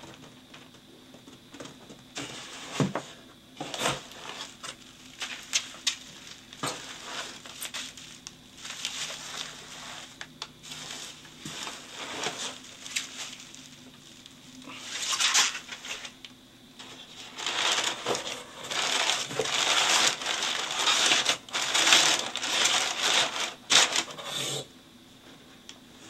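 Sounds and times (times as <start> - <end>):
bubble wrap crinkling: 3.6 - 16.2, 16.8 - 24.1.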